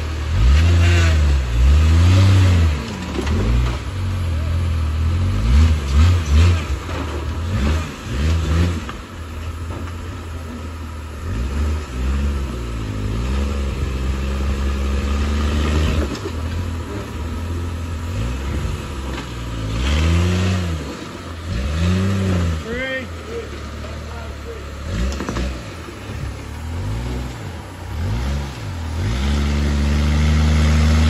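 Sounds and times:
engine revving: 0.0s - 31.0s.

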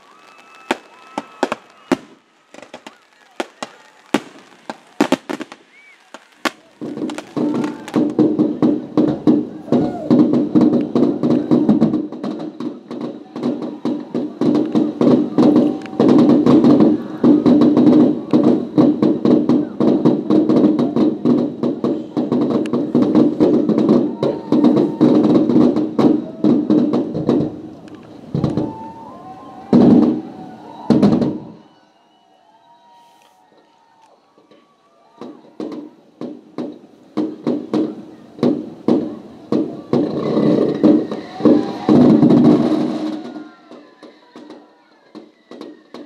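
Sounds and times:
fireworks bangs and crackles: 0.0s - 46.0s.

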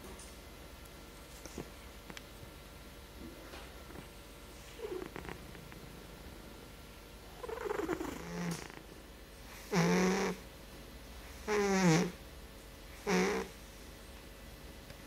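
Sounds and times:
cat snoring: 4.6s - 5.6s, 7.2s - 8.8s, 9.6s - 10.4s, 11.3s - 12.2s, 13.0s - 13.6s.

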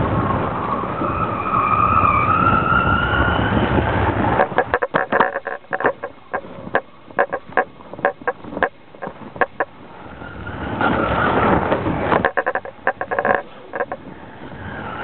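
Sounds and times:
wind rushing with whistling tone: 0.0s - 15.0s
sharp clicks and knocks: 4.4s - 9.7s, 11.7s - 14.0s.

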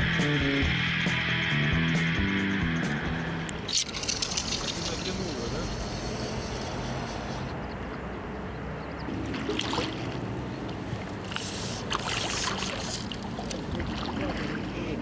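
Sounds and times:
steady low hum: 0.0s - 11.1s
water splashing around legs: 3.7s - 5.2s, 9.1s - 14.8s.

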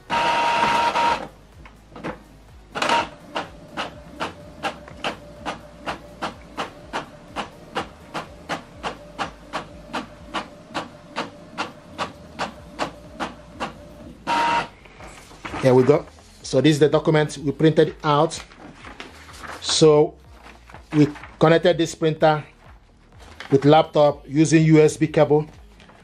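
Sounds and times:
printer feed whir: 0.0s - 1.3s, 2.8s - 15.1s.

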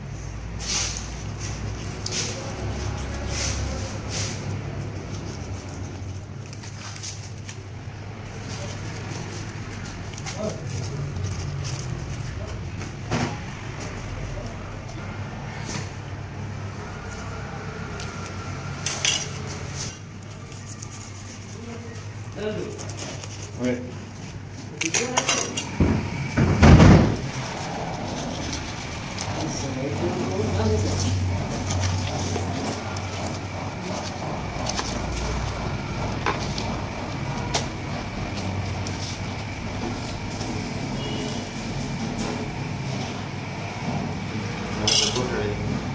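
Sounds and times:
low background hum: 0.0s - 45.9s.

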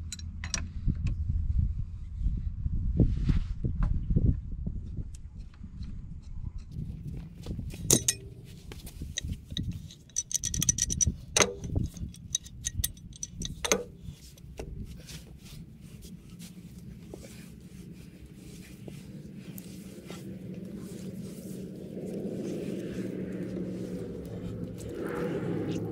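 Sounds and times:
metal tools clinking on bolts: 7.7s - 14.6s
sharp metal knocks: 7.8s - 14.4s.

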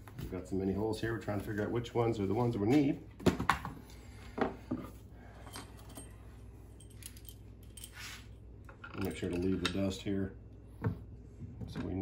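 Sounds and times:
light clicks and clinks of tools: 5.4s - 9.9s
soft brushing sound: 7.9s - 8.4s.

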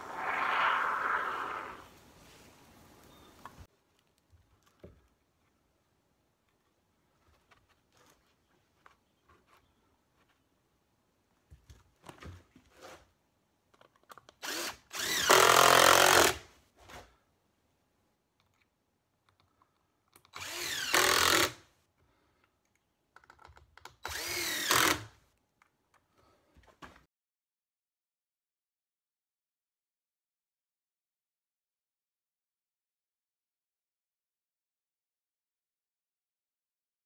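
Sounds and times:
cordless drill driving screws: 14.4s - 16.5s, 20.2s - 21.6s, 23.9s - 25.2s.

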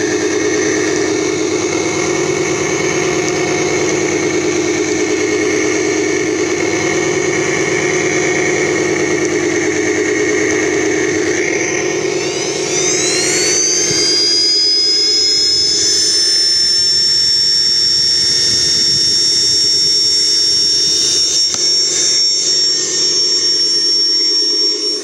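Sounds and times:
electric motor whirring: 0.0s - 25.0s
high motor whine: 0.0s - 25.0s.

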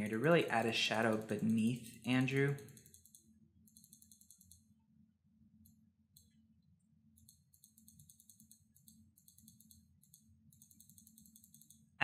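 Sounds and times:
rapid mouse ticking: 0.0s - 4.7s, 7.1s - 12.0s.

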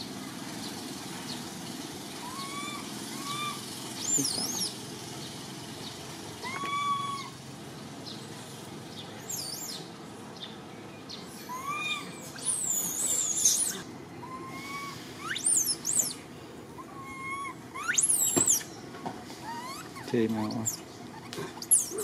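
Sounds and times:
steady outdoor hiss: 0.0s - 22.0s
animal whistles and squeals: 2.2s - 4.8s, 6.4s - 7.4s, 9.3s - 9.9s, 11.3s - 16.2s, 16.8s - 18.8s, 19.4s - 22.0s.

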